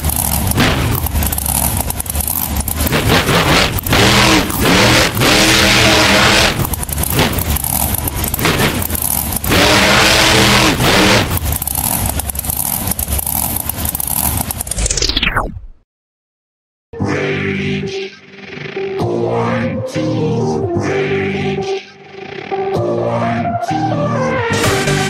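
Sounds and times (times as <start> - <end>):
monster truck engine revving: 0.0 - 15.2.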